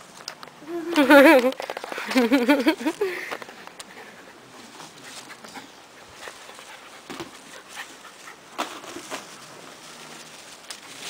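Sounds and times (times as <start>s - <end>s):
dog scuffling in grass: 4.4s - 11.0s.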